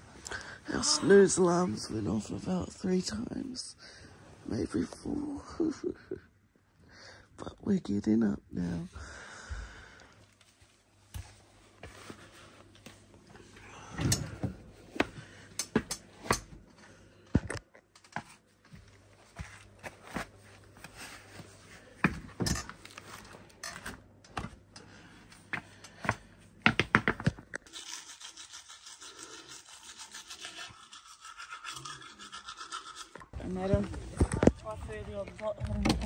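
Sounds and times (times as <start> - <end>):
toothbrush scrubbing teeth: 27.7 - 33.4.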